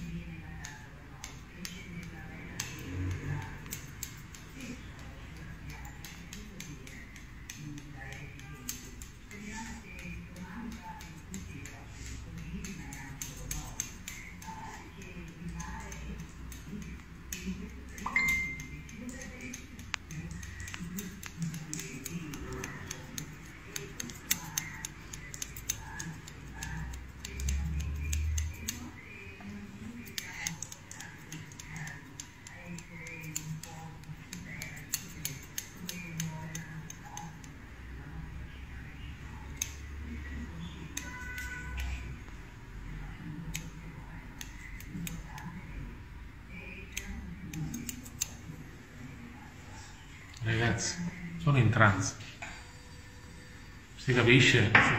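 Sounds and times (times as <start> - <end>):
scissors snipping hair: 0.0 - 38.2, 39.1 - 42.3, 42.9 - 45.9, 46.5 - 49.2.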